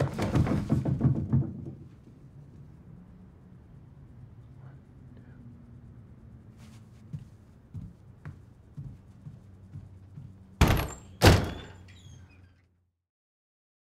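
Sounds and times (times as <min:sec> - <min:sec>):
soft footsteps on floor: 0:06.5 - 0:10.6.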